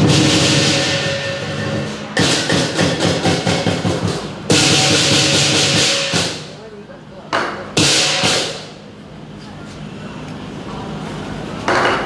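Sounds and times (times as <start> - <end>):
ringing gong: 0.0 - 2.2
big drum rolls: 0.0 - 6.8
cymbals crashing: 0.0 - 6.8, 7.7 - 8.9.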